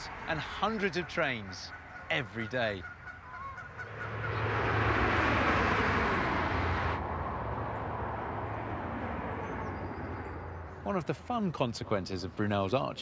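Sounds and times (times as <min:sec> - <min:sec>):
train rumbling over bridge: 0:03.4 - 0:10.4.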